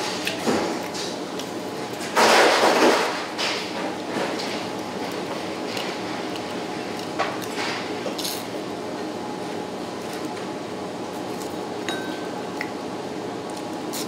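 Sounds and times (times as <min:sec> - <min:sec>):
steady background hum: 0:00.0 - 0:14.0
dishes and chopsticks clinking: 0:11.9 - 0:12.4.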